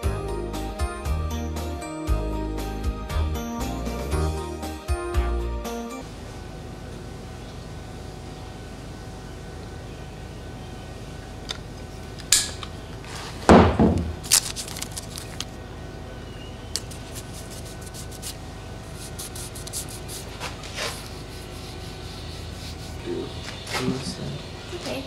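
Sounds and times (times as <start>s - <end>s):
heavy thump: 13.5s - 14.2s
tape tearing: 14.2s - 15.5s
tape crackling and rubbing: 14.2s - 15.6s, 16.8s - 23.0s.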